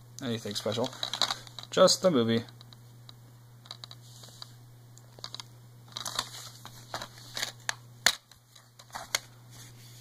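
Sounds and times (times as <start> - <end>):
plastic case clicks and crinkles: 3.6 - 4.5, 5.2 - 9.3.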